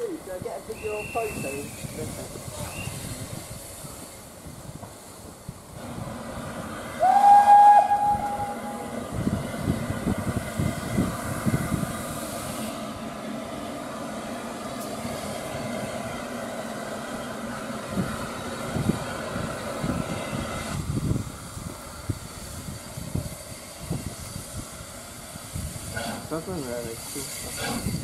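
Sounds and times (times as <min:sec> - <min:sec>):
steam hiss: 0:00.0 - 0:28.0
steam locomotive whistle: 0:00.7 - 0:01.8, 0:07.0 - 0:09.0.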